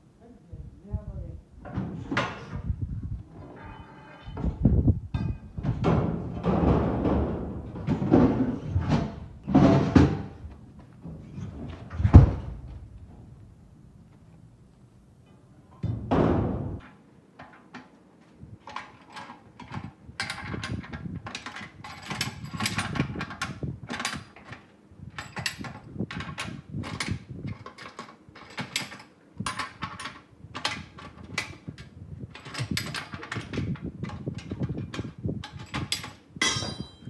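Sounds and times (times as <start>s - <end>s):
loud thump: 15.8s - 16.8s
metal clanking: 32.4s - 37.0s.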